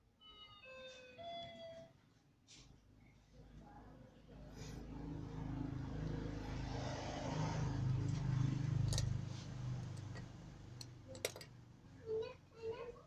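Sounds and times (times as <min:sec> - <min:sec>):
passing vehicle engine hum: 0:04.0 - 0:12.0.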